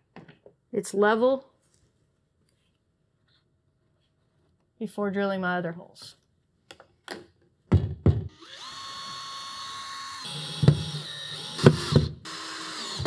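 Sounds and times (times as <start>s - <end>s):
cordless drill drilling through metal: 8.3s - 13.0s.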